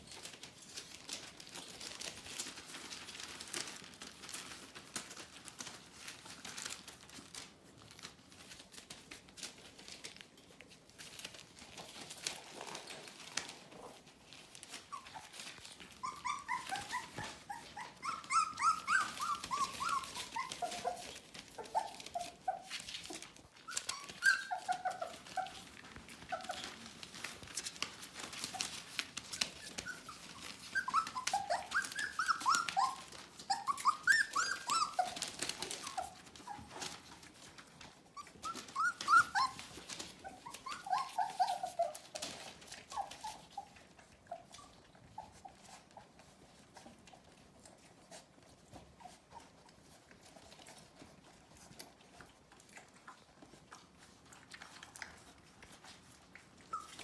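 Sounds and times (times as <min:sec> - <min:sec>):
newspaper rustling: 0:00.0 - 0:43.6
puppies whining and yipping: 0:00.0 - 0:57.0.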